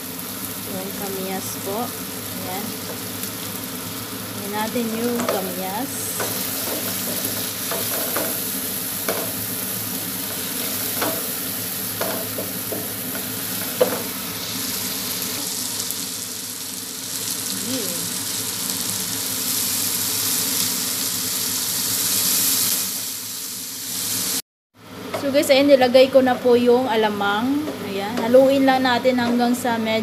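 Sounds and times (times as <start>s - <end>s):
vegetables sizzling in oil: 0.0s - 25.5s
spatula stirring in pan: 6.1s - 14.1s
spatula knocking against pan: 6.2s - 8.4s, 9.0s - 9.4s, 12.0s - 14.1s.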